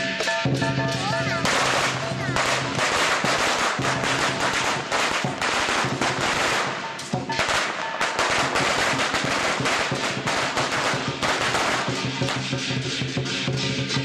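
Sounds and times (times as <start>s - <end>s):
firecrackers banging rapidly: 0.0s - 14.0s.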